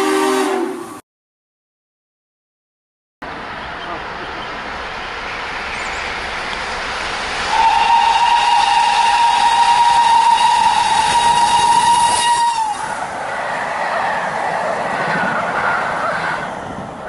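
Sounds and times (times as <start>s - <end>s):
rush of approaching steam train: 0.0s - 1.0s, 3.2s - 17.0s
steam locomotive whistle blast: 0.0s - 1.0s, 7.5s - 13.0s.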